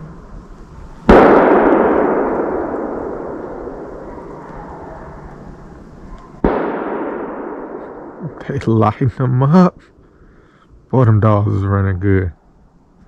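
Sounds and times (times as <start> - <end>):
gunshots echoing: 1.1 - 4.5, 6.4 - 8.6.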